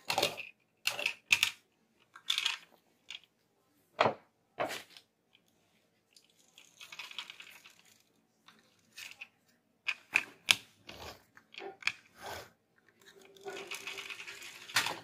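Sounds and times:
plastic toy clicks and crackles: 0:00.0 - 0:03.3, 0:06.3 - 0:09.3, 0:12.8 - 0:15.0
toy truck whirring: 0:09.9 - 0:15.0.

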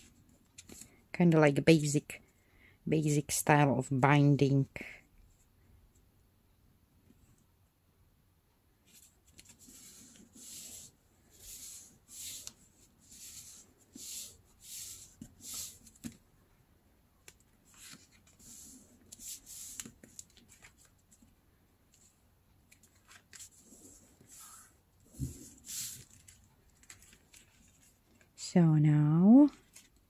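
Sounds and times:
newspaper swishing: 0:08.9 - 0:16.1, 0:23.1 - 0:27.9.

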